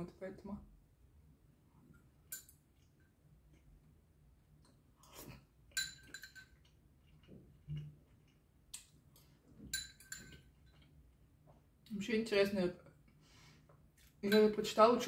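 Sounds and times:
fork clinking against ceramic bowl: 0:05.7 - 0:06.7, 0:09.7 - 0:10.5.

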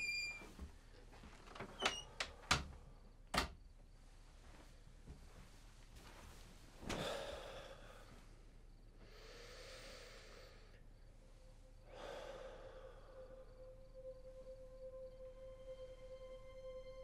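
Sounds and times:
man breathing deeply: 0:06.8 - 0:14.0.

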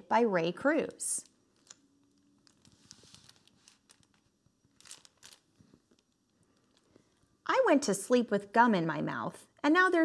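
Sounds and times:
book pages rustling and turning: 0:02.4 - 0:06.9
page swishes: 0:02.6 - 0:04.0.

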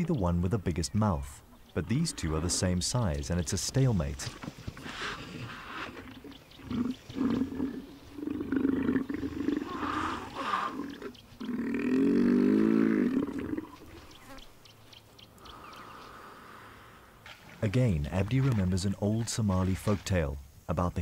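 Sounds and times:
hippopotamuses roaring: 0:04.8 - 0:13.8.

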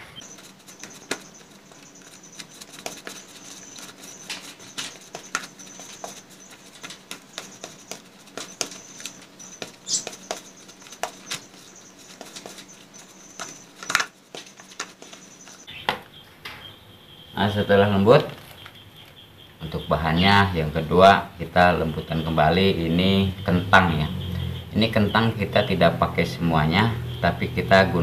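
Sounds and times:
spoon scraping plastic bowl: 0:00.2 - 0:15.7.

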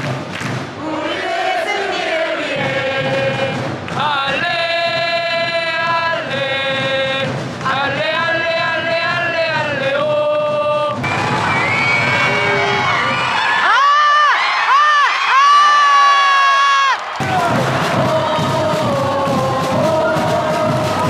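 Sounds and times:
crowd chanting in unison: 0:00.0 - 0:11.0, 0:16.9 - 0:21.0
crowd shouting: 0:11.0 - 0:21.0.

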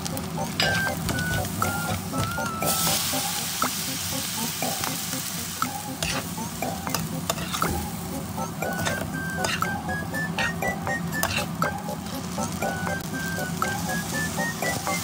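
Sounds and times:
noodles sizzling in a hot pan: 0:02.6 - 0:05.3
spatula scraping a pan: 0:07.3 - 0:07.7, 0:08.8 - 0:09.6.

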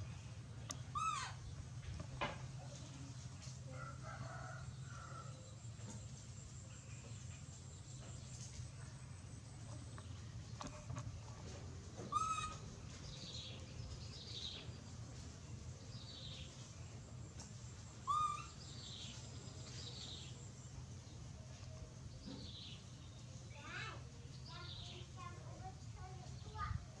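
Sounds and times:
birds chirping: 0:00.2 - 0:03.3
loud bird calls: 0:00.7 - 0:01.6, 0:12.0 - 0:13.6, 0:18.0 - 0:19.2.

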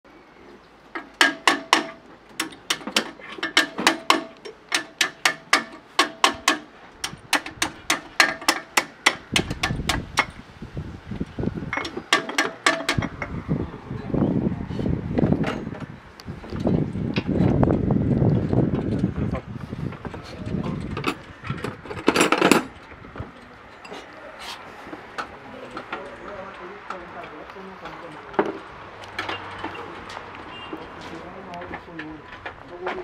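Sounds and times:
metal tool tapping metal: 0:01.0 - 0:10.4, 0:11.7 - 0:13.2
low rumbling noise: 0:09.3 - 0:12.1, 0:12.8 - 0:29.0.

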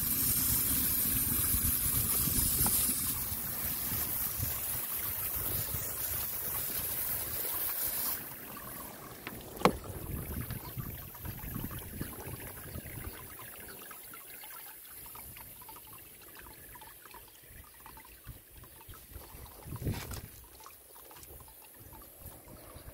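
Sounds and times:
hose nozzle spray hissing: 0:00.0 - 0:08.2.

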